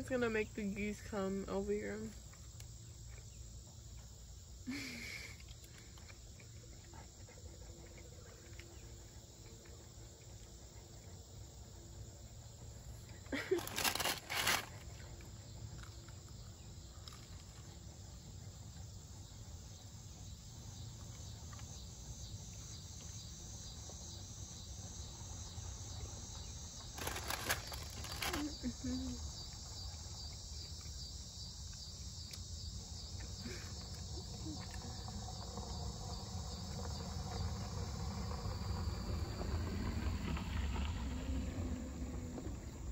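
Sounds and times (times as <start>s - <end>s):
insects chirping: 0.0s - 42.9s
low background rumble: 33.6s - 42.9s.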